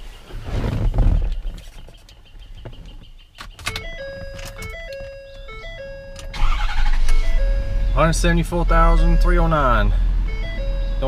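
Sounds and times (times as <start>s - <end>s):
diesel truck engine cranking and running: 3.7s - 11.0s.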